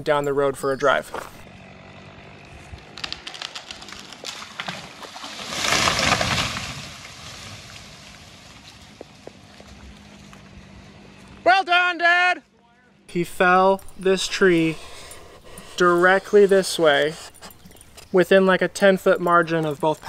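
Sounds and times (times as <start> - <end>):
tree crashing to ground: 1.9 - 10.3
wood cracking and snapping: 2.3 - 10.0.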